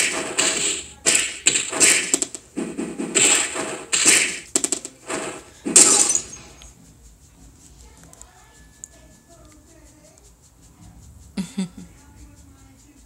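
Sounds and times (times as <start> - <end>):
cartoon hit sound effects: 0.0 - 6.5.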